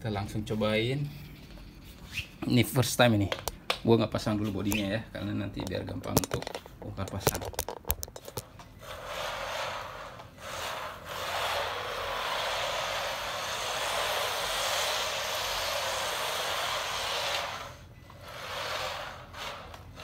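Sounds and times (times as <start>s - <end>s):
toy car tyres scrubbing hiss: 8.8s - 20.0s.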